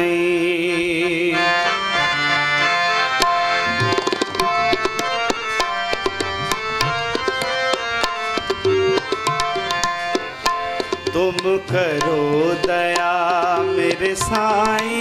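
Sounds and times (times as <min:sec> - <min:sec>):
harmonium melody: 0:00.0 - 0:15.0
tabla strokes: 0:03.2 - 0:15.0.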